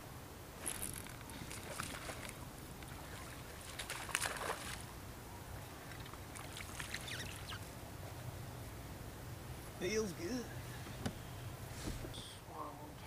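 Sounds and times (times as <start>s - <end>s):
fishing tackle clicks and rustles: 0.6s - 4.8s.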